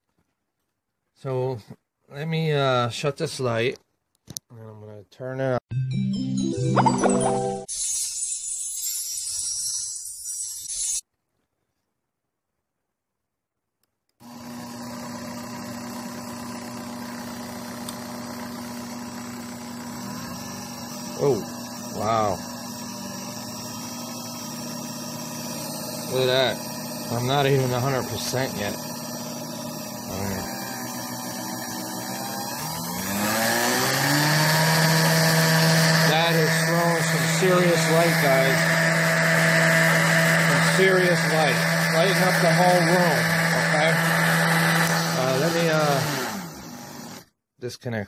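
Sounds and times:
electric mixer motor running: 14.2s - 47.3s.

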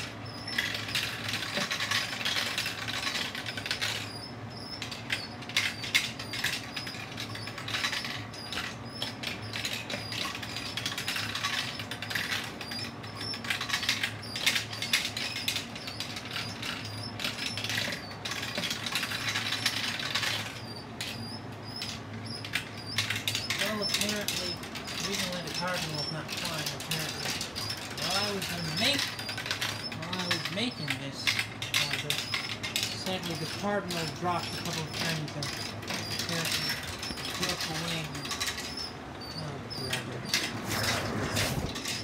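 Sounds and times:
motor humming: 0.0s - 42.0s
marbles clacking through plastic tracks: 21.8s - 38.7s.

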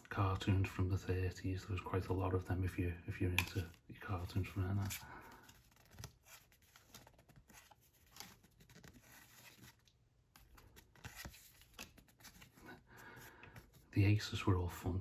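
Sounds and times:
tarot cards rustling and tapping: 3.2s - 13.9s.

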